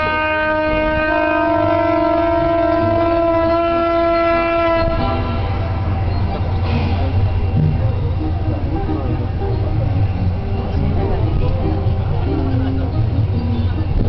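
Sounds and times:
diesel locomotive horn blast: 0:00.0 - 0:12.1
train rumbling: 0:00.0 - 0:14.0.

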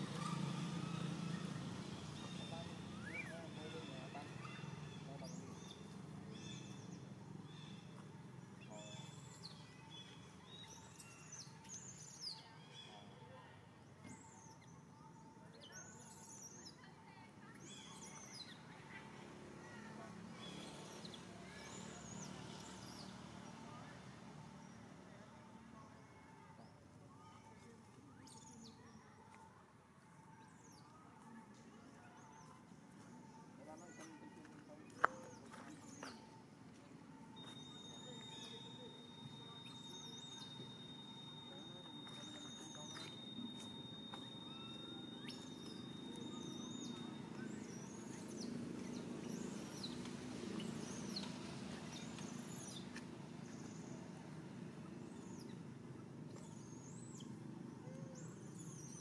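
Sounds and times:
low background noise: 0:00.0 - 0:59.0
faint high chirps: 0:37.1 - 0:55.6, 0:56.3 - 0:59.0
baby monkey squeaking: 0:37.4 - 0:50.0, 0:50.6 - 0:51.3, 0:51.9 - 0:53.9, 0:55.0 - 0:55.6, 0:56.3 - 0:57.4, 0:58.0 - 0:59.0.

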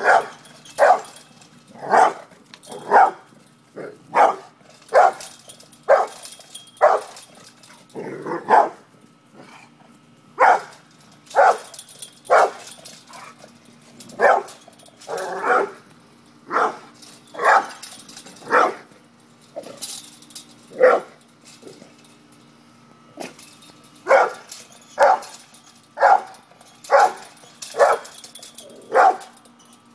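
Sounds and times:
dog barking: 0:00.0 - 0:01.1, 0:01.9 - 0:02.2, 0:02.8 - 0:03.2, 0:04.1 - 0:05.2, 0:05.9 - 0:06.2, 0:08.4 - 0:08.8, 0:10.4 - 0:10.7, 0:11.4 - 0:11.7, 0:12.3 - 0:12.6, 0:14.2 - 0:14.5, 0:16.5 - 0:17.8, 0:18.5 - 0:18.8, 0:20.8 - 0:21.1, 0:24.1 - 0:24.4, 0:25.0 - 0:25.3, 0:26.0 - 0:26.3, 0:26.9 - 0:27.2, 0:27.8 - 0:28.0, 0:28.9 - 0:29.3.

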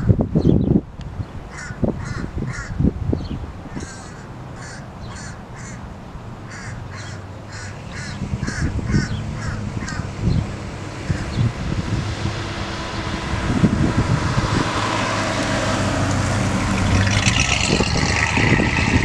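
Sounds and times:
crows cawing: 0:01.5 - 0:02.8, 0:03.7 - 0:05.8, 0:06.5 - 0:10.1
car engine: 0:03.6 - 0:19.0.

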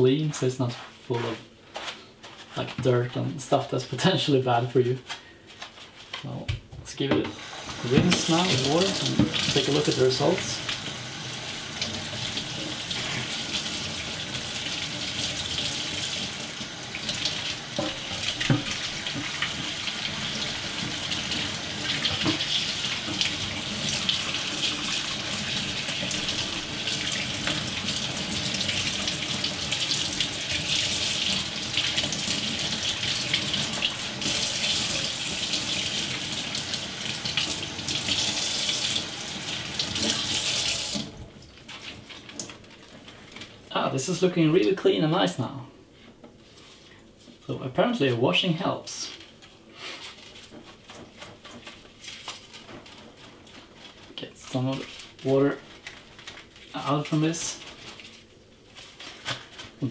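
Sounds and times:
tap water splashing in sink: 0:06.5 - 0:43.1.

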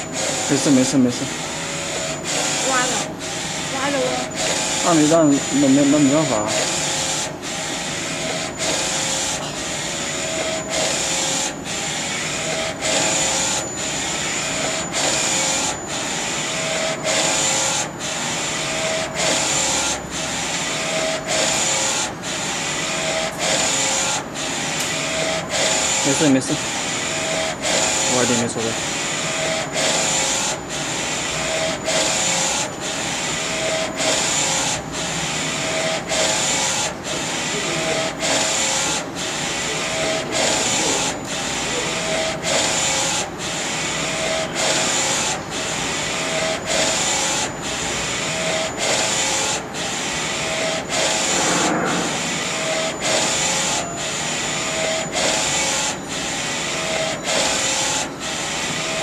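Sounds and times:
thin high whine: 0:51.0 - 0:54.0.

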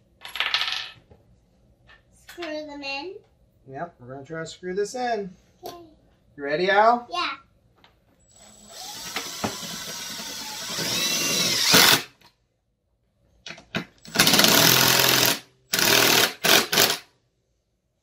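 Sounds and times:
impact driver hammering: 0:14.1 - 0:17.1.

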